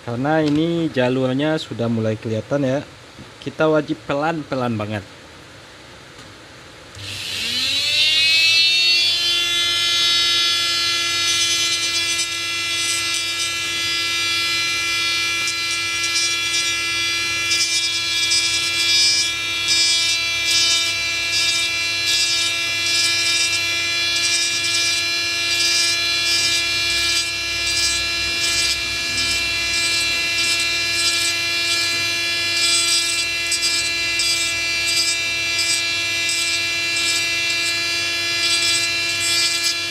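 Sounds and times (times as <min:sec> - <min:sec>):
rotary tool whining: 0:07.0 - 0:39.9
bit grinding a chip: 0:09.2 - 0:39.9.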